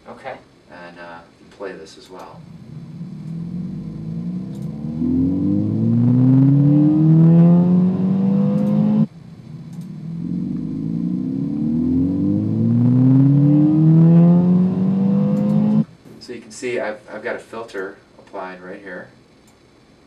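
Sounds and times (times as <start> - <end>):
car engine accelerating: 2.3 - 15.9.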